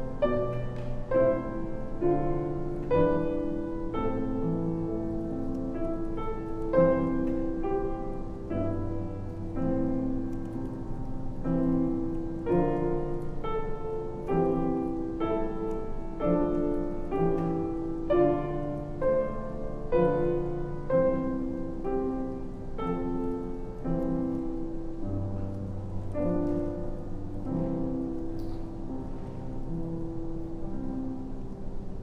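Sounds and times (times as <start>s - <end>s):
slow keyboard chords: 0.0s - 32.0s.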